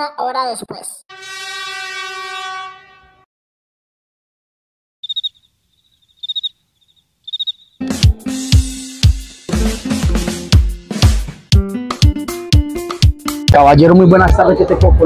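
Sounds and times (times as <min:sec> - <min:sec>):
cricket chirping: 0:05.0 - 0:07.8
music with drum kit: 0:07.8 - 0:15.0.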